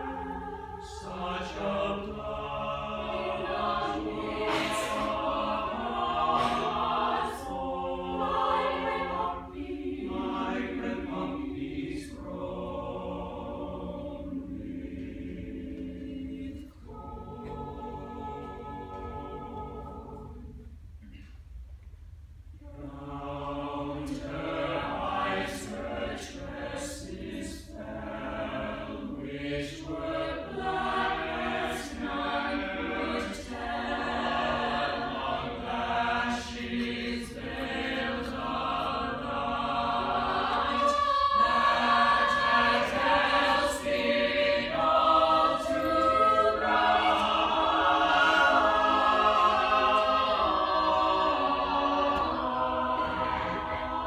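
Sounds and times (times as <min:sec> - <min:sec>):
choir singing a cappella: 0:00.0 - 0:20.9, 0:22.6 - 0:54.0.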